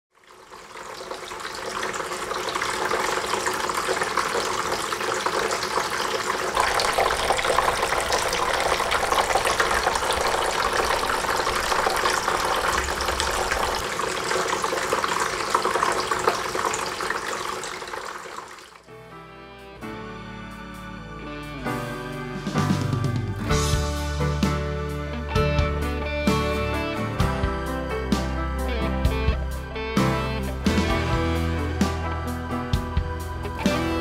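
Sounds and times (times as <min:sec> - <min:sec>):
fountain water splashing: 0:00.1 - 0:18.8.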